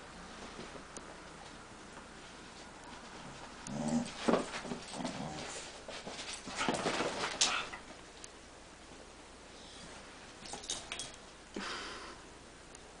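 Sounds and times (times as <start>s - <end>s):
dogs growling and yipping: 3.7s - 5.5s.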